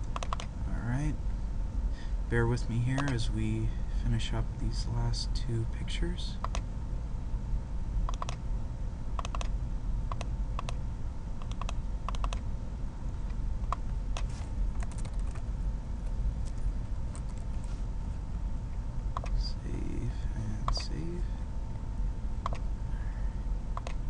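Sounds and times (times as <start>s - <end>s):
keyboard and mouse clicks: 0.0s - 0.5s, 3.0s - 3.2s, 6.4s - 6.6s, 8.1s - 8.4s, 9.2s - 9.5s, 10.1s - 10.8s, 11.4s - 12.4s, 19.2s - 19.4s, 20.6s - 20.9s, 22.4s - 22.6s, 23.8s - 24.0s
low hum: 0.0s - 24.0s.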